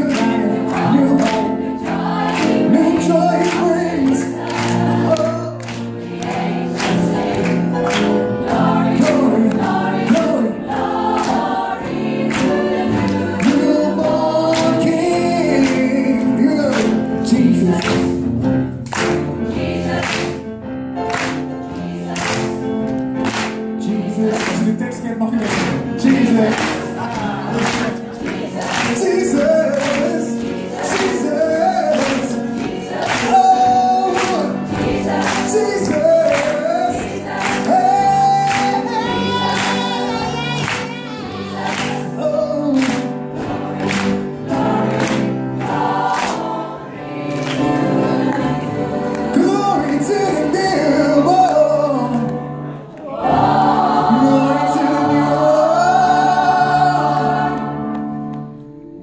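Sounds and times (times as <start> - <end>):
man singing into microphone: 0.0 - 1.6, 2.7 - 4.4, 13.4 - 18.2, 28.9 - 32.5, 33.2 - 34.7, 35.4 - 39.4, 42.0 - 43.2, 49.3 - 52.4, 54.0 - 57.0
mixed choir singing: 0.0 - 18.4, 19.1 - 59.0
hand claps on the beat: 0.0 - 20.4, 21.0 - 46.6, 47.3 - 50.3.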